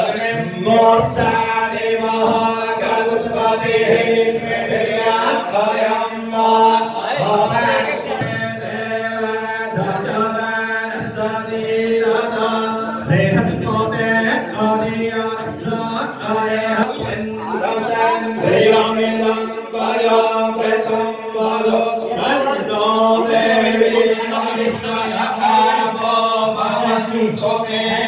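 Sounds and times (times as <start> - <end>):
melodic chanting: 0.0 - 28.0.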